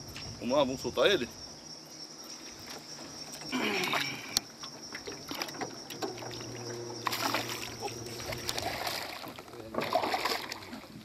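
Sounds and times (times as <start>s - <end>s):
fish splashing water: 3.8s - 11.0s.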